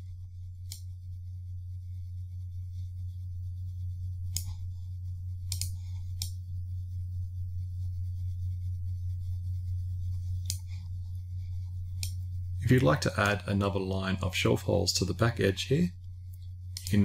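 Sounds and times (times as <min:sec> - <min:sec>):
low electrical hum: 0:00.0 - 0:17.0
computer mouse clicks: 0:00.6 - 0:00.9, 0:04.3 - 0:04.6, 0:05.4 - 0:06.4, 0:12.0 - 0:12.2, 0:16.3 - 0:17.0.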